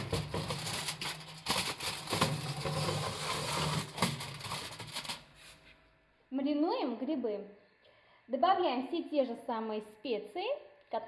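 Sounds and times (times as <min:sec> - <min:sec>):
metal tray scraping and rattling: 0:00.0 - 0:05.3
foil crinkling: 0:00.0 - 0:05.6.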